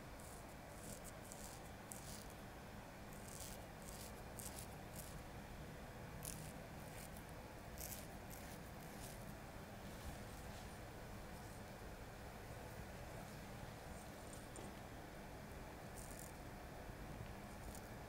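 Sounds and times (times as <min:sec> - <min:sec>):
low room hum: 0:00.0 - 0:18.0
razor scraping stubble: 0:00.2 - 0:02.4, 0:03.1 - 0:05.2, 0:06.2 - 0:09.3, 0:15.9 - 0:16.4, 0:17.5 - 0:18.0.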